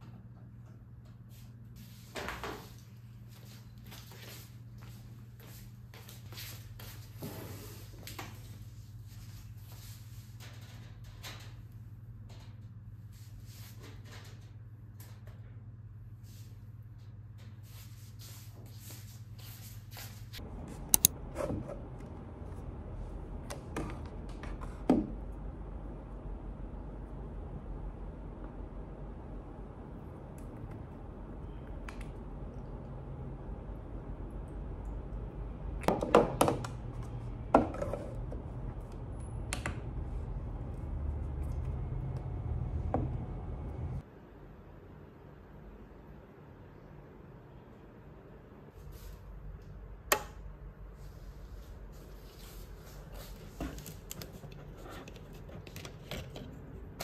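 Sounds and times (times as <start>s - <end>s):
steady low hum: 0.0s - 57.0s.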